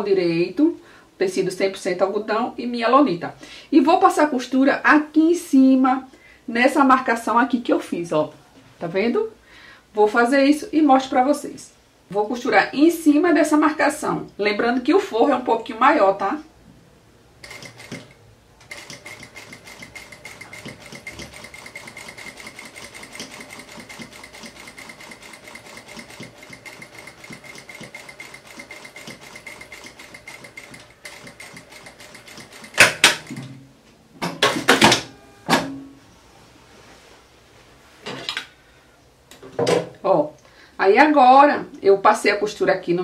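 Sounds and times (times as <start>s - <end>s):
sewing machine stitching: 17.4s - 33.5s.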